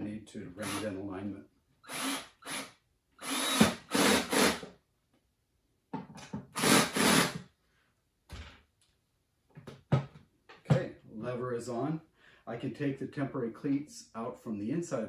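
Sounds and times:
cordless drill driving screws: 0.6s - 0.9s, 1.8s - 4.7s, 6.5s - 7.4s.

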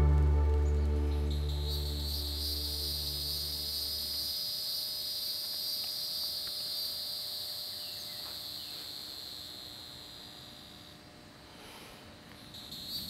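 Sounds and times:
crickets and insects trilling: 1.3s - 11.0s, 12.4s - 13.0s.

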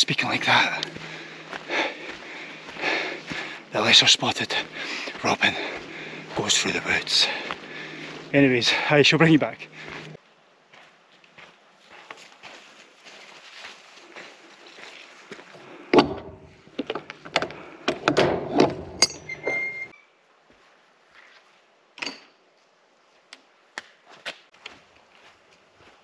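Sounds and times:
footsteps: 0.2s - 17.6s, 24.0s - 26.0s.

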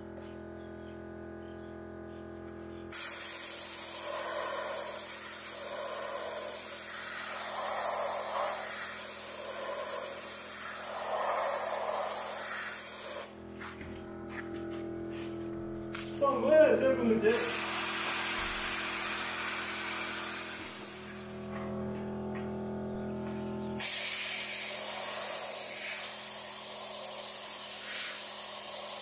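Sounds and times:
paint spray gun hissing: 2.9s - 14.4s, 17.2s - 21.7s, 23.2s - 29.0s.

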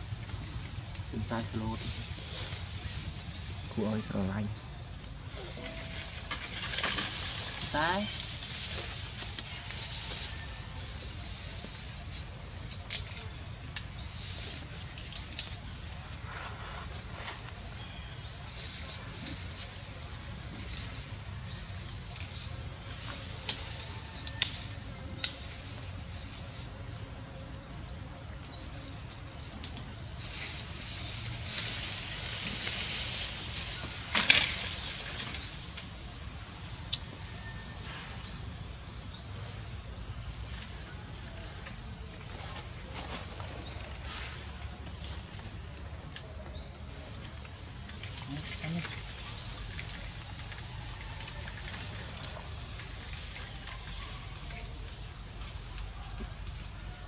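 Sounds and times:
low rumble: 0.0s - 27.4s
small birds chirping: 0.0s - 37.6s
steady high hiss: 0.0s - 57.0s.

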